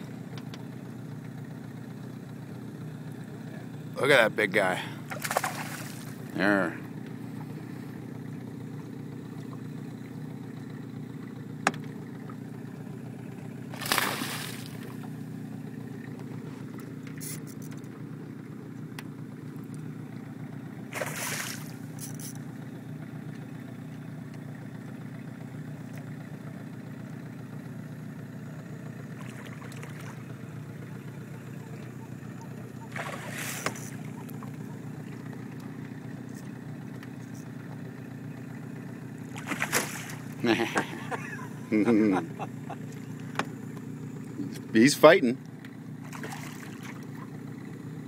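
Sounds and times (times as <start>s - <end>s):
steady low hum: 0.0s - 48.0s
fish splashing at surface: 5.1s - 6.2s, 13.7s - 15.0s, 20.9s - 22.2s, 32.9s - 34.1s, 39.3s - 40.4s, 46.0s - 47.2s.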